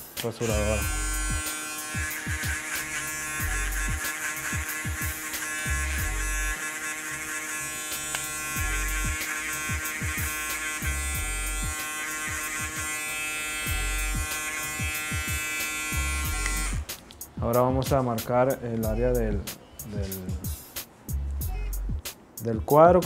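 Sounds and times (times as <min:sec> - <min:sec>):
electric shaver buzzing: 0:00.4 - 0:17.0
music with deep bass beat: 0:00.6 - 0:02.6, 0:03.3 - 0:05.1, 0:05.7 - 0:06.5, 0:08.5 - 0:12.5, 0:13.7 - 0:15.4, 0:18.8 - 0:22.1.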